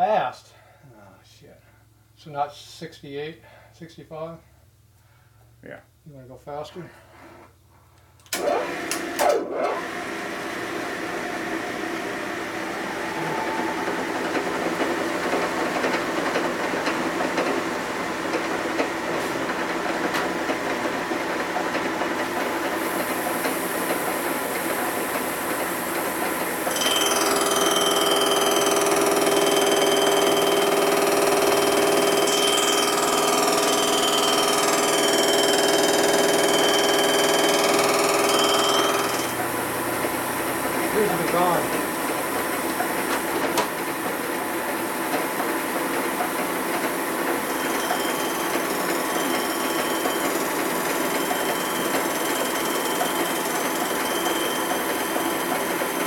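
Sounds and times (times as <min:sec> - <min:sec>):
metal-cutting machine running: 0:08.4 - 0:56.0
high whine: 0:12.1 - 0:16.3.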